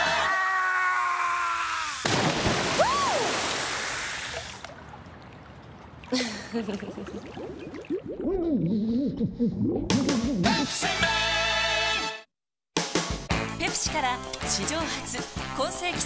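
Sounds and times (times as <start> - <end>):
body splashing into pool: 2.0 - 5.0.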